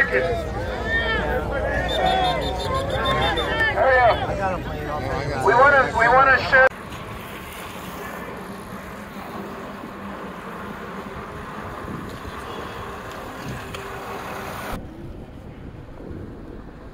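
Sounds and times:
bicycle road noise: 0.0s - 16.9s
wind rush on microphone: 11.0s - 16.9s.

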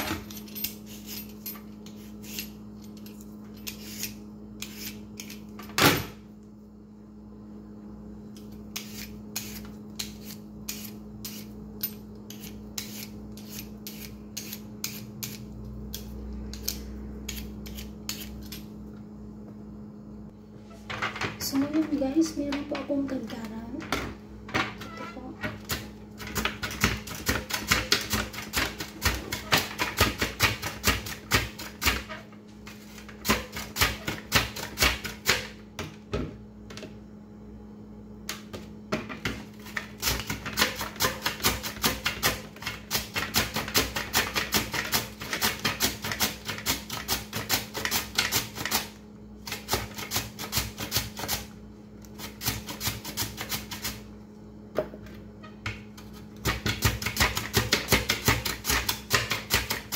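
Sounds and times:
steady low hum: 0.0s - 59.9s
potato scraping across mandoline slicer: 3.6s - 5.5s, 8.4s - 11.6s, 12.3s - 18.7s.

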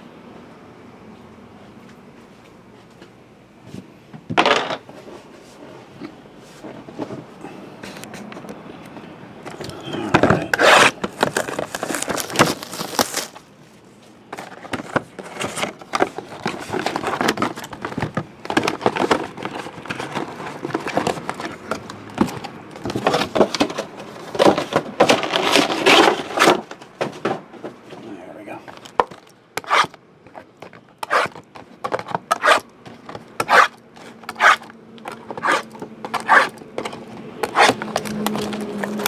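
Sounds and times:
shrink-wrapped boxes rustling: 9.5s - 39.0s.

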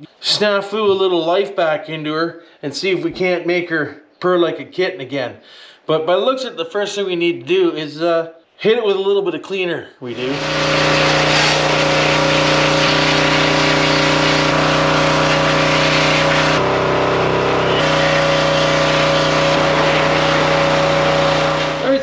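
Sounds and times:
pressure washer motor humming: 10.1s - 22.0s
hissing spray jet: 10.2s - 22.0s.

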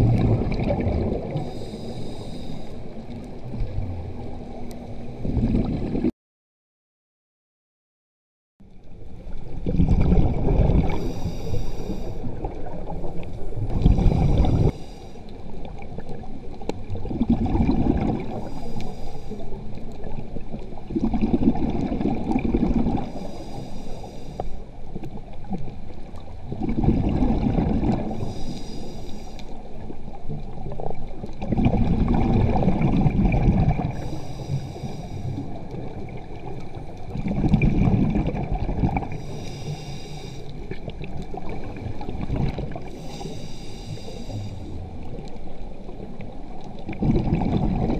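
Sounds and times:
exhaled bubbles gushing: 0.0s - 1.6s, 5.2s - 6.1s, 9.4s - 11.2s, 12.2s - 14.7s, 15.7s - 18.6s, 20.0s - 23.2s, 25.1s - 28.3s, 30.4s - 34.3s, 35.4s - 39.3s, 40.6s - 43.0s, 44.8s - 47.9s
hissing regulator inhale: 1.3s - 3.0s, 10.9s - 12.4s, 13.1s - 15.5s, 18.3s - 19.7s, 23.0s - 24.8s, 28.1s - 29.7s, 33.9s - 35.6s, 39.1s - 40.7s, 42.8s - 44.9s.

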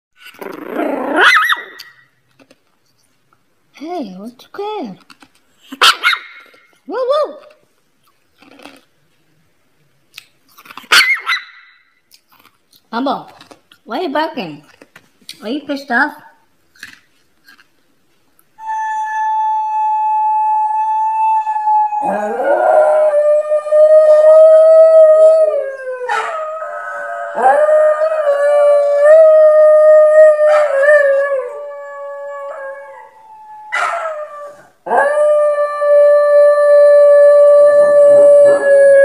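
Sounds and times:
dog howling: 18.6s - 39.0s.

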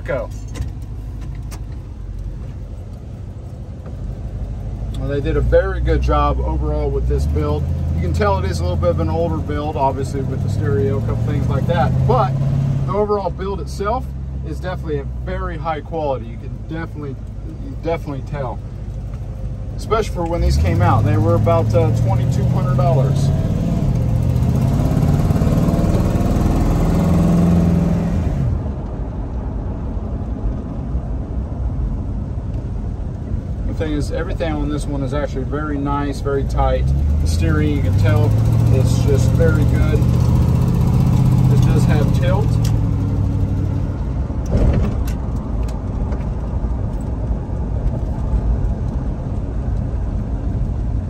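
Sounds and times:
car engine accelerating: 0.0s - 51.0s
road and tyre noise: 0.0s - 51.0s.

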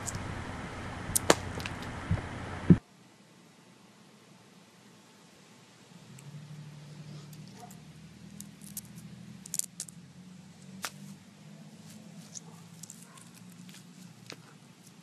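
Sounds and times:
low steady hum: 0.0s - 15.0s
ice chunks clicking: 9.5s - 9.9s.

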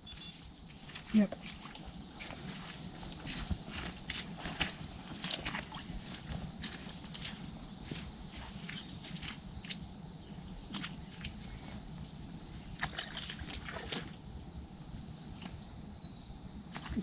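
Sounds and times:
birds chirping: 0.0s - 17.0s
water splashing and sloshing: 0.8s - 9.9s, 10.6s - 14.3s, 16.7s - 17.0s.

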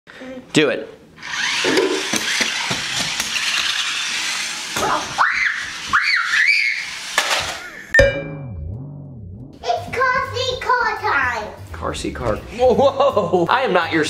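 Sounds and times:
toy car electric motor whirring: 1.2s - 7.8s
low wobbling electronic tone: 8.0s - 9.6s
sharp hit: 8.0s - 9.8s.

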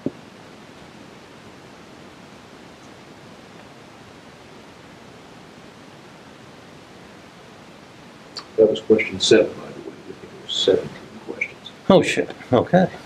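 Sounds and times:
steady recording hiss: 0.0s - 13.0s.

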